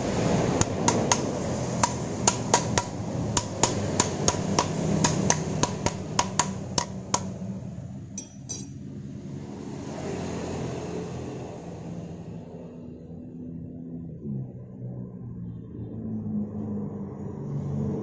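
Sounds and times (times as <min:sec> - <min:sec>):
metal tool tapping on engine: 0:00.6 - 0:07.4, 0:08.1 - 0:08.8.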